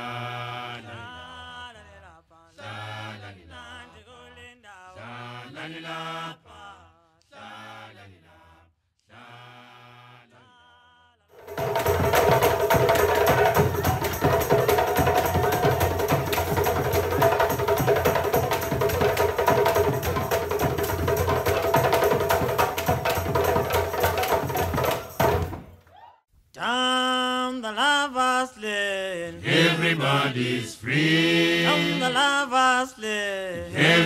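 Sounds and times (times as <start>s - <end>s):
chanted song: 11.4s - 24.4s
fast hand drumming with bass drum: 11.4s - 25.7s.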